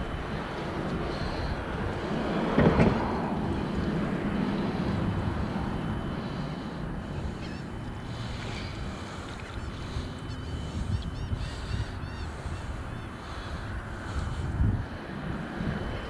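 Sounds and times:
steady rushing background: 0.0s - 16.0s
faint honking calls: 7.1s - 13.7s.

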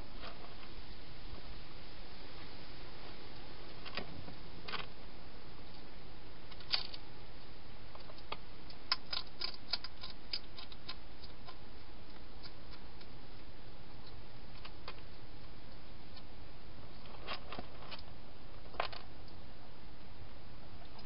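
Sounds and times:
steady hiss: 0.0s - 21.0s
hedgehog crunching dry food: 6.5s - 7.1s, 7.9s - 15.3s.

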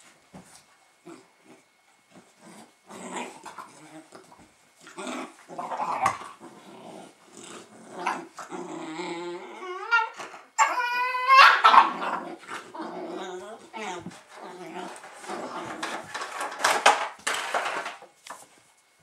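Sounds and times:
puppies growling: 1.0s - 17.0s.

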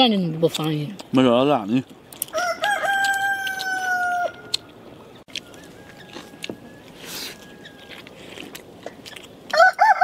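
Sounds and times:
rooster crowing: 2.3s - 4.7s, 5.3s - 8.2s, 9.5s - 10.0s.

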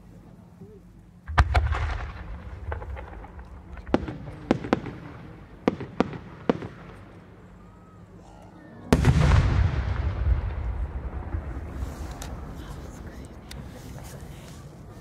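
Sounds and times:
sharp firework cracks: 1.3s - 7.2s, 9.0s - 12.6s
firework mortar deep boom: 1.3s - 7.3s, 8.9s - 13.1s.

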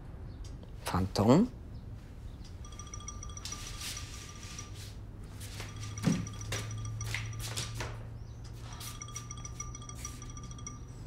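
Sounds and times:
phone chiming ringtone: 2.6s - 7.9s, 8.5s - 11.0s.

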